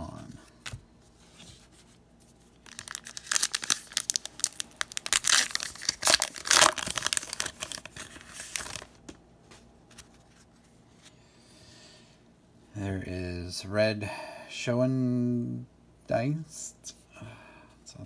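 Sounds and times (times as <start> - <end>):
wrapper tearing and crinkling: 2.6 - 9.0
cards clicking and rustling: 2.6 - 9.2.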